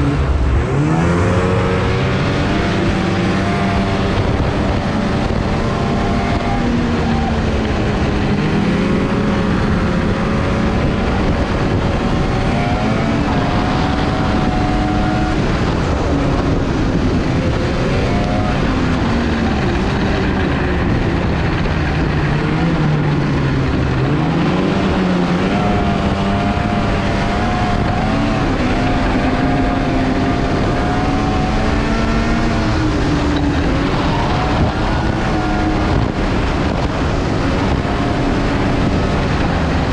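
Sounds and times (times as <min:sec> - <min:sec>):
snowmobile engine: 0:00.0 - 0:39.9
steady rushing noise: 0:00.0 - 0:39.9.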